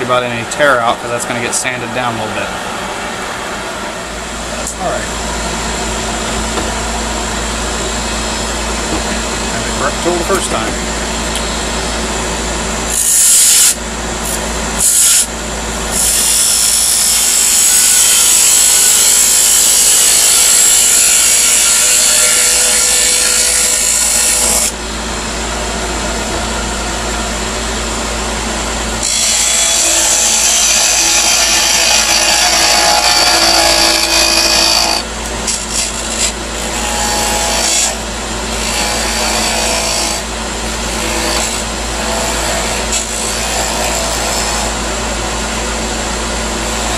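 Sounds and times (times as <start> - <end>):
wood lathe running: 15.9 - 45.0.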